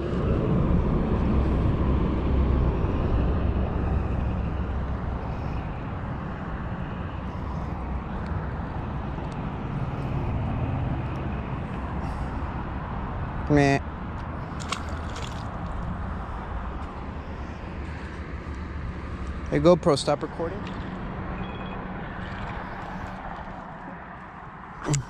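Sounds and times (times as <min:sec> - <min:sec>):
low rumble of road traffic: 0:00.0 - 0:25.0.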